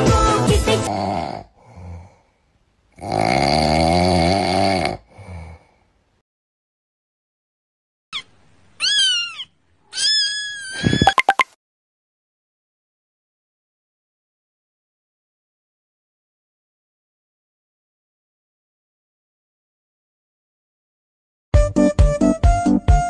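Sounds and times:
cat meowing: 8.8 - 11.2.

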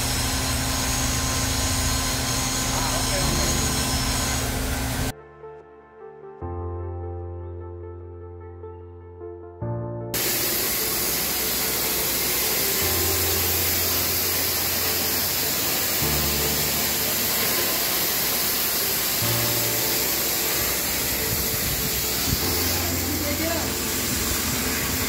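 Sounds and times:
welding arc hissing: 0.0 - 5.1, 10.2 - 25.0
background music: 2.6 - 25.0.

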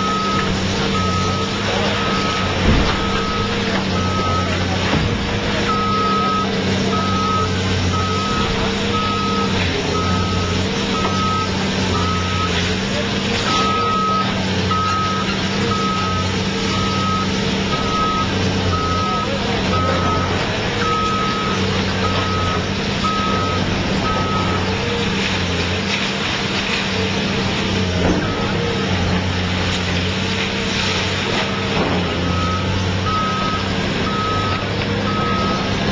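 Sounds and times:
backup alarm beeping: 0.0 - 5.0, 5.6 - 12.7, 13.5 - 24.7, 32.2 - 35.7
heavy diesel engine running: 0.0 - 35.9
concrete breaking and debris falling: 1.5 - 5.7.

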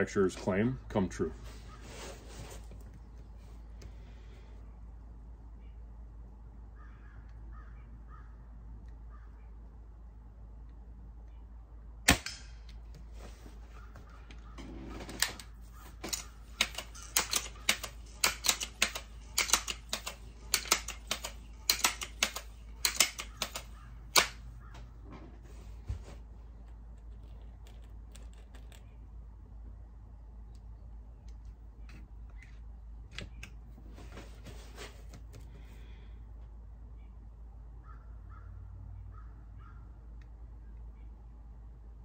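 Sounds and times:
air rifle mechanical clicks: 12.1 - 13.1, 14.3 - 24.9.

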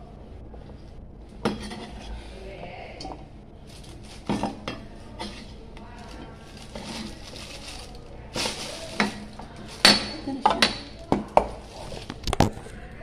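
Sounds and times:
utensils and dishes clinking: 1.4 - 2.1, 3.8 - 12.4.

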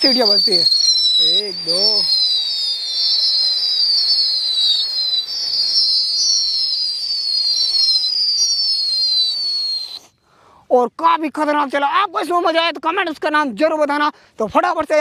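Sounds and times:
whistling firecrackers: 0.0 - 10.2.

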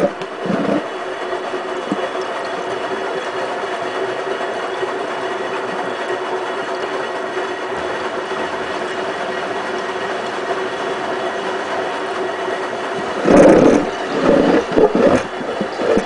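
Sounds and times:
water sloshing in drum: 0.0 - 3.1, 13.0 - 16.0
washing machine motor hum: 0.0 - 16.0.

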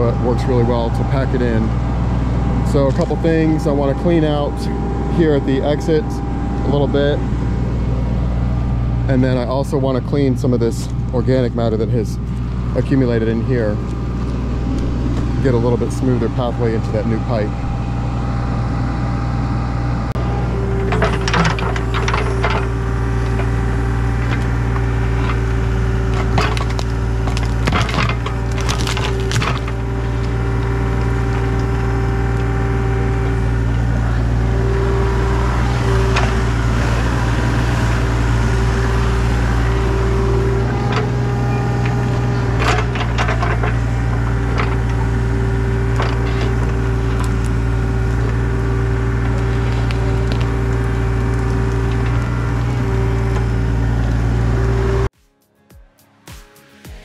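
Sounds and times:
excavator engine running under load: 0.0 - 55.1
sticks and roots cracking: 24.2 - 32.5, 45.8 - 54.2.

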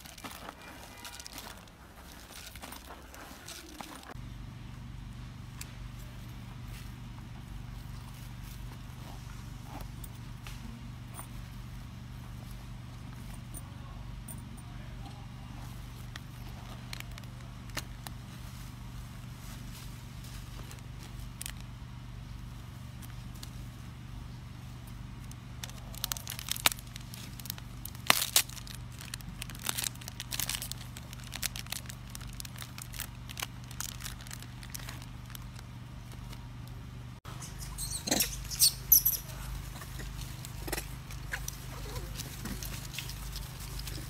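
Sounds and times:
rustling and tearing of cloth bag: 0.0 - 4.2, 25.6 - 36.4, 39.4 - 44.0
steady low hum: 0.0 - 44.0
macaque squealing: 37.3 - 42.2.

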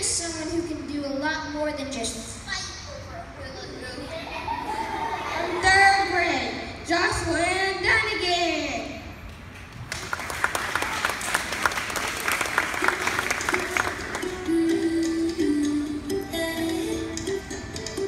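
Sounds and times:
child speaking into microphone: 0.0 - 4.6, 5.2 - 9.0
audience clapping: 9.3 - 14.6
music: 12.8 - 18.0.

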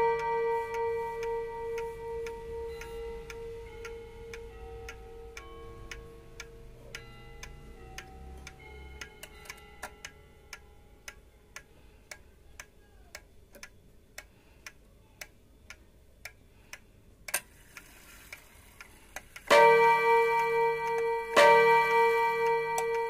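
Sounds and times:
clock chime ringing: 0.0 - 11.1, 19.5 - 23.0
clock ticking: 0.0 - 23.0
loud clock click: 19.2 - 23.0.

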